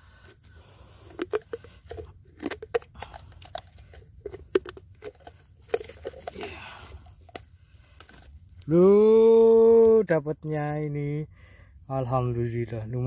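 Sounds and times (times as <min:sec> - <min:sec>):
leaves and plastic crunching: 0:00.1 - 0:10.0.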